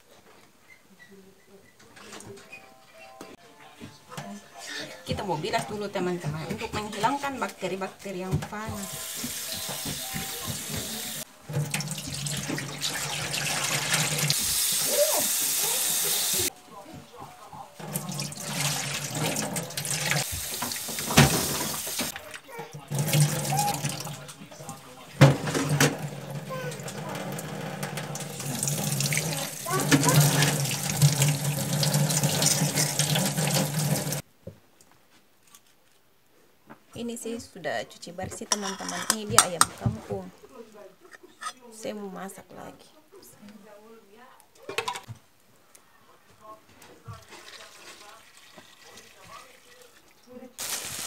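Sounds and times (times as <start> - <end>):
tap water running into sink: 8.7 - 16.5, 17.8 - 22.2, 22.9 - 34.2, 47.1 - 51.0
tap water splashing into bowl: 17.8 - 22.2, 47.1 - 49.9.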